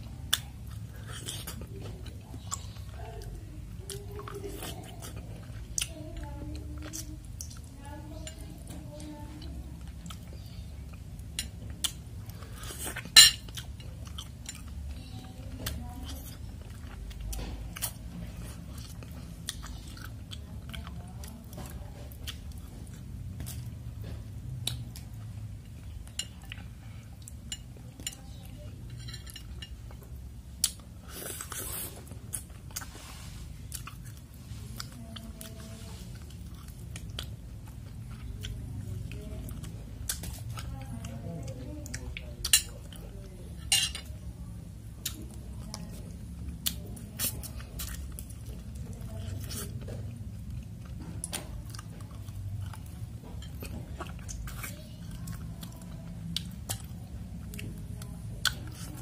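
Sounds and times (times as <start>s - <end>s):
person chewing: 0.0s - 44.3s, 44.9s - 59.0s
cutlery clinking on bowl: 13.1s - 13.6s, 43.6s - 44.1s.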